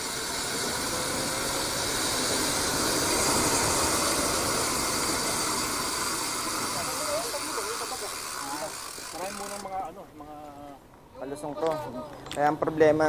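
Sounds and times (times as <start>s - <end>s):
wind and road rushing noise: 0.0s - 9.0s.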